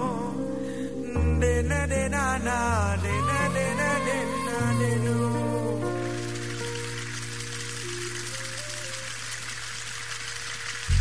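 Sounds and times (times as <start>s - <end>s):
person singing: 0.0s - 6.2s
held keyboard chords: 0.0s - 11.0s.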